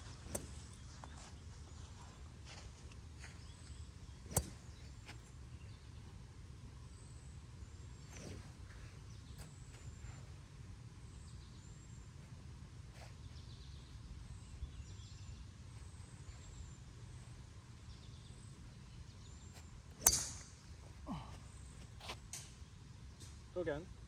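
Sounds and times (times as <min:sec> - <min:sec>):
low outdoor rumble: 0:00.0 - 0:24.0
golf club striking ball: 0:00.1 - 0:00.8, 0:03.4 - 0:05.0, 0:20.0 - 0:20.7
faint bird chirps: 0:12.9 - 0:22.0.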